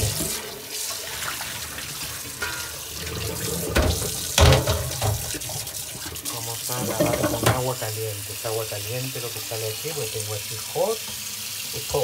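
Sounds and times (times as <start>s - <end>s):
tap running into metal sink: 2.3s - 7.8s.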